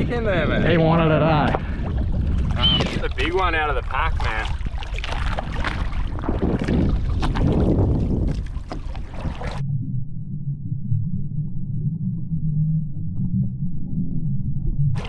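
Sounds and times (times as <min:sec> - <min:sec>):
wind noise on microphone: 0:00.0 - 0:09.6
shallow water sloshing and splashing: 0:00.0 - 0:09.7
low rumble: 0:00.0 - 0:15.0.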